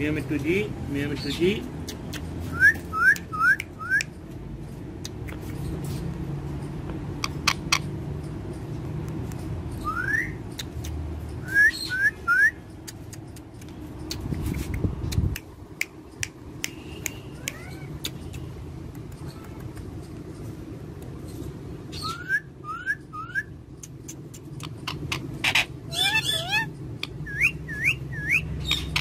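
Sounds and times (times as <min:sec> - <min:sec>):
parakeets calling: 0:06.6 - 0:08.8, 0:19.3 - 0:29.0.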